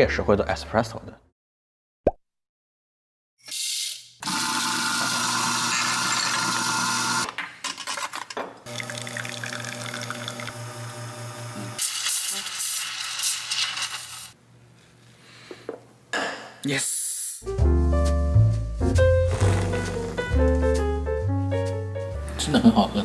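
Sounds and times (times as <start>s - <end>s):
coffee grinder motor: 4.2s - 7.3s, 8.7s - 13.1s
espresso machine pump humming: 4.2s - 7.3s, 8.7s - 12.0s.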